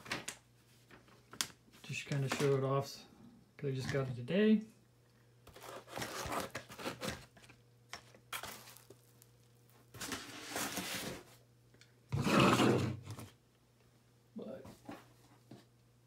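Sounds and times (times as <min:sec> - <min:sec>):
faint steady hum: 0:00.0 - 0:16.0
foam and plastic wrapping rustling: 0:08.3 - 0:11.4.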